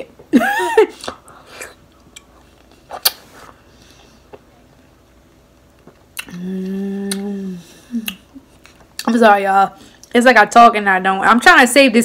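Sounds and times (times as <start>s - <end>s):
sharp mouth clicks: 6.2s - 6.4s, 8.0s - 8.2s.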